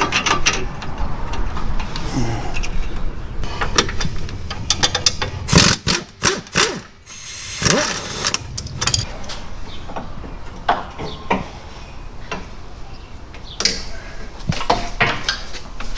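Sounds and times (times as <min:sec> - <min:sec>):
tools clanking on steel parts: 0:07.6 - 0:09.1.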